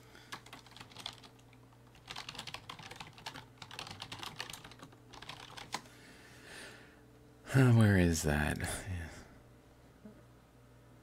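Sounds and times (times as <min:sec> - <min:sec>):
faint steady hum: 0:00.0 - 0:11.0
typing on a computer keyboard: 0:00.3 - 0:05.9.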